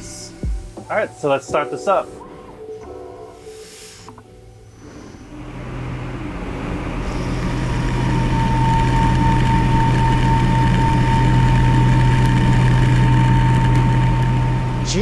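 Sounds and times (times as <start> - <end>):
lathe spindle humming and whining: 5.2 - 15.0.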